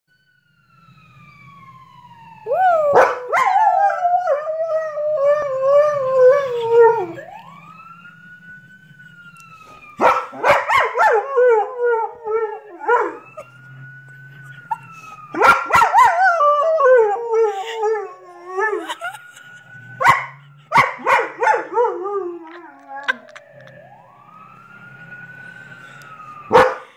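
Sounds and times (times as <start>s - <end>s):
siren wailing: 0.1s - 26.9s
dog howling: 2.5s - 7.2s, 20.0s - 23.5s.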